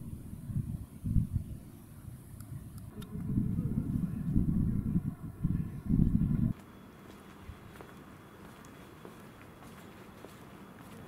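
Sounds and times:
low rumble: 2.9 - 6.5
footsteps on paving: 6.5 - 11.0.

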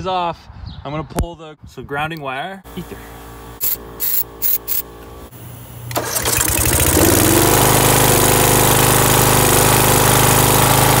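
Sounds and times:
mower engine starting and running: 2.7 - 11.0
spray hisses: 3.6 - 4.8.

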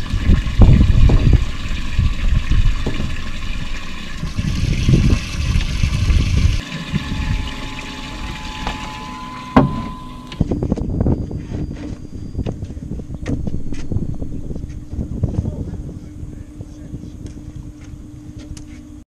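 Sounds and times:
water sloshing and splashing: 0.0 - 10.4.

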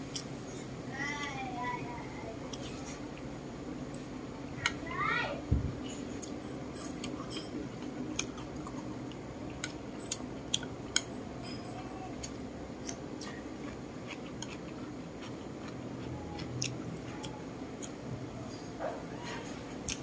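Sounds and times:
chewing: 6.0 - 20.0.

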